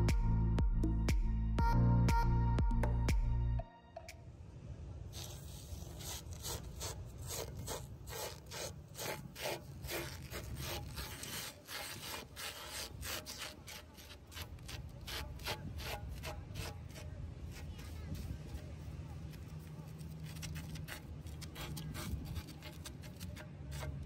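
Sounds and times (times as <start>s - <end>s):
hand scraping batter on griddle: 5.2s - 24.0s.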